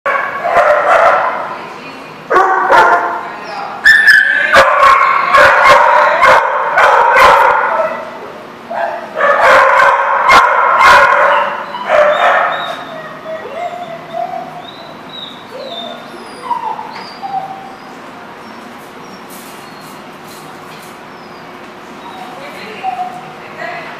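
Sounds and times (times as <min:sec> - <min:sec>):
dogs barking and yipping: 0:00.1 - 0:01.5, 0:02.3 - 0:08.1, 0:08.7 - 0:23.3
dog whining: 0:11.1 - 0:20.4, 0:21.1 - 0:23.3.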